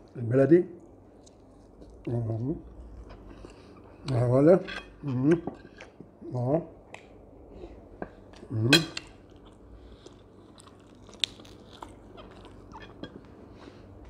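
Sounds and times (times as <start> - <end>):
crunchy chewing and biting: 8.2 - 14.0.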